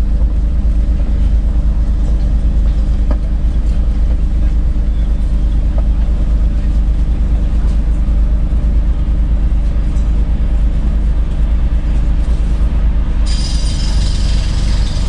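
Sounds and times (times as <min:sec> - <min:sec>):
hiss with high ringing tones: 0:13.3 - 0:15.0.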